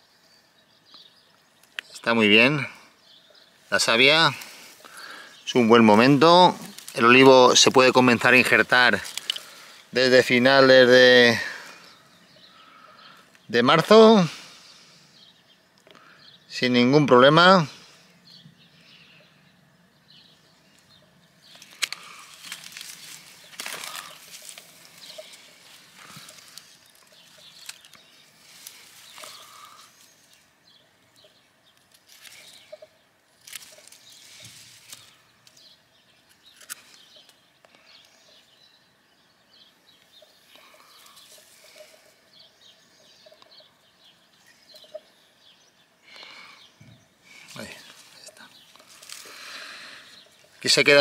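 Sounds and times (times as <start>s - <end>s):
dry grass rustling: 1.5s - 14.9s, 20.1s - 38.4s, 39.9s - 45.8s, 47.2s - 51.0s
pruning shears snipping: 9.0s - 9.6s, 21.5s - 28.0s, 33.4s - 35.6s.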